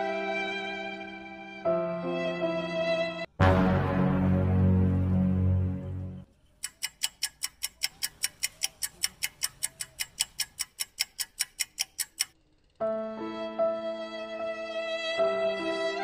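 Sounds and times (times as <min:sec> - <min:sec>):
held chord of background music: 0:00.0 - 0:06.3
clock ticking: 0:06.4 - 0:12.4.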